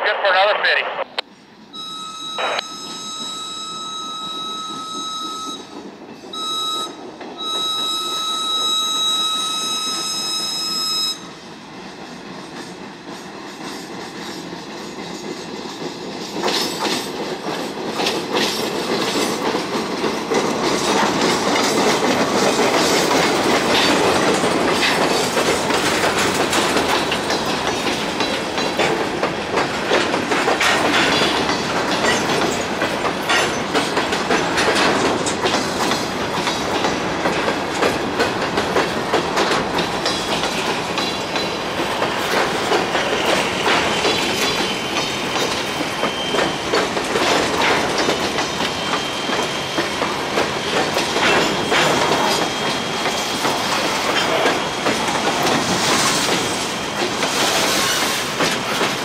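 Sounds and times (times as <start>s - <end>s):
train wheels clacking over rail joints: 12.0s - 59.0s
wheel squeal: 43.0s - 46.7s, 47.6s - 53.4s.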